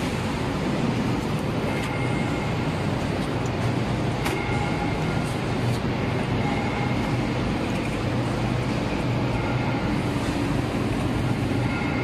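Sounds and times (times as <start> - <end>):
machinery low hum: 0.0 - 12.0.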